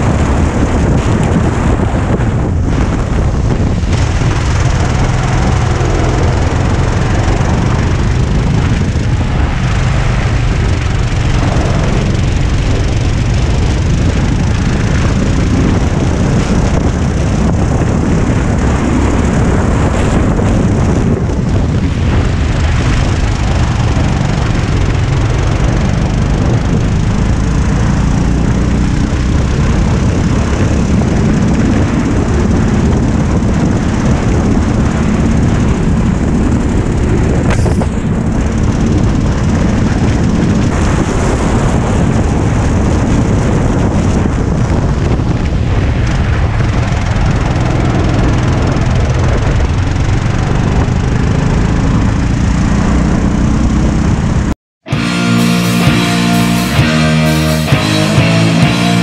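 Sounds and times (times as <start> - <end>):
kart engine running hard: 0.0 - 59.0
wind and road noise: 0.0 - 59.0.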